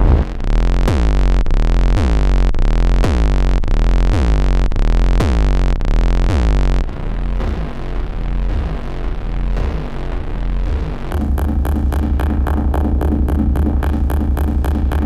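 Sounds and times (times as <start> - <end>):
deep bass drone: 0.0 - 15.0
noisy synthesizer texture: 10.4 - 15.0
synthesizer pulse sweeping tone: 11.1 - 15.0.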